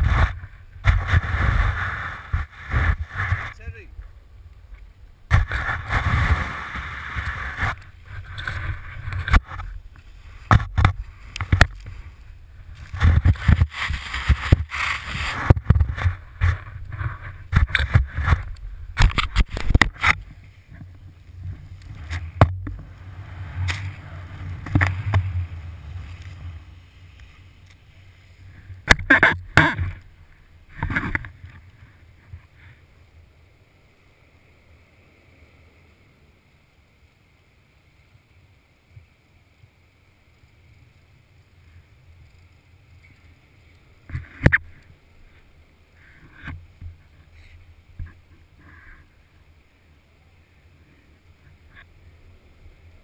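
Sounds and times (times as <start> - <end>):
snow spray from ski turns: 0.0 - 3.8, 5.3 - 18.5
wind rushing over camera: 0.0 - 32.8.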